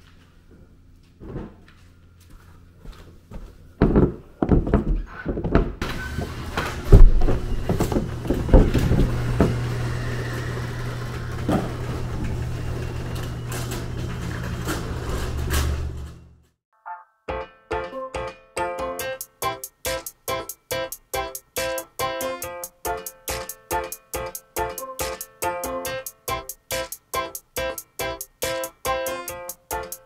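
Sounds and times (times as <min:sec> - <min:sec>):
knocks and thumps: 0:03.8 - 0:05.9
garage door opener running: 0:05.8 - 0:16.5.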